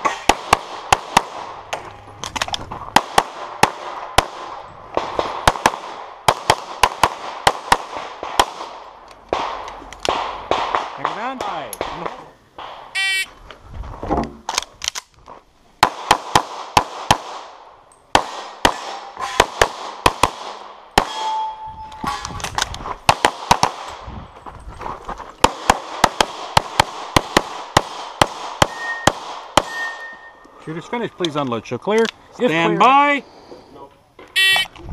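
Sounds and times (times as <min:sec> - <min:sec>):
rapid pistol shots: 0:00.0 - 0:01.6, 0:03.0 - 0:11.2, 0:15.8 - 0:21.2, 0:23.1 - 0:23.9, 0:25.4 - 0:29.8.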